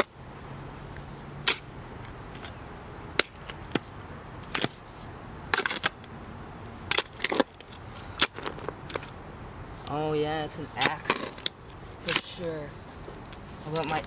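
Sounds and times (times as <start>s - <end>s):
shovel digging in soil: 1.2s - 2.6s, 3.2s - 4.9s, 10.8s - 12.7s, 13.3s - 14.0s.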